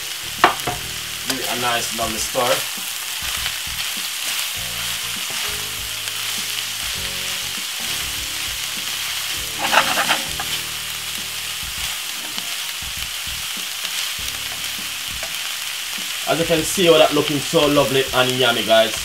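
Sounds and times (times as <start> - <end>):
food sizzling in a frying pan: 0.0 - 19.0
wooden spoon stirring: 0.4 - 15.5.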